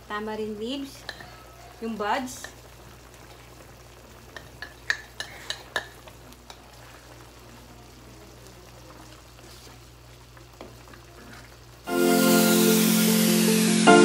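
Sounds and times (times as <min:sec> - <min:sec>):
wooden spoon stirring in wok: 0:08.8 - 0:11.9.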